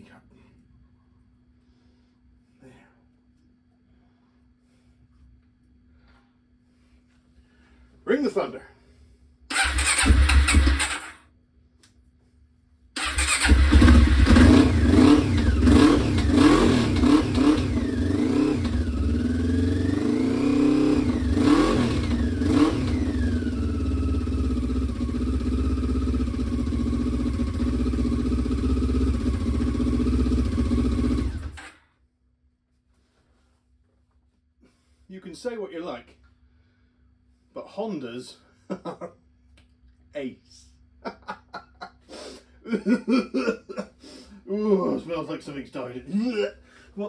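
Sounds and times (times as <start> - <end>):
motorcycle engine cranking and revving: 9.5 - 11.2, 13.0 - 31.8.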